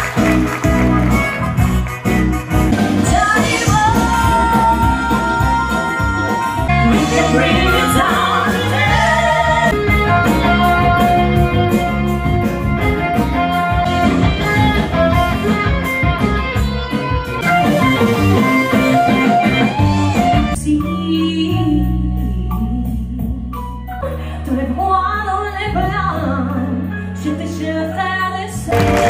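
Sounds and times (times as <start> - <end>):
band with drums and piano: 0.0 - 29.0
women singing into microphones: 3.0 - 9.8.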